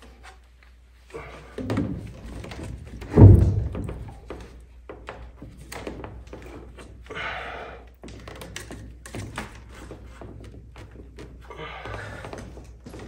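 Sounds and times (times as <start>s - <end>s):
plastic pipe taps and knocks: 3.1s - 4.4s.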